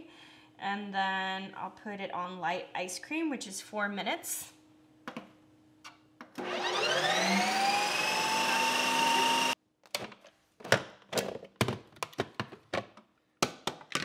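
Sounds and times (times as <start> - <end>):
ice cream maker motor whine: 6.4 - 9.6.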